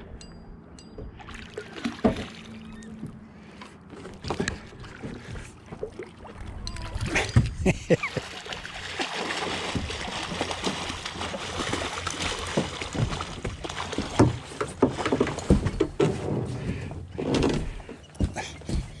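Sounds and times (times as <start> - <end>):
water splashing: 1.1 - 15.6
knocks against boat: 12.5 - 19.0.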